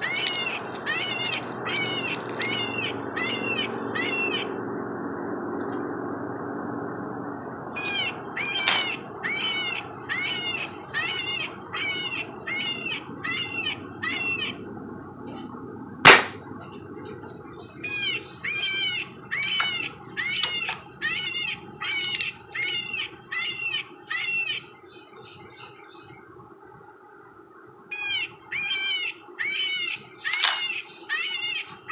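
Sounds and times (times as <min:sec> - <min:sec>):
animal calling repeatedly: 0:00.0 - 0:04.6, 0:07.8 - 0:14.7, 0:17.7 - 0:26.0, 0:27.9 - 0:31.9
air rifle shot: 0:16.1 - 0:16.4.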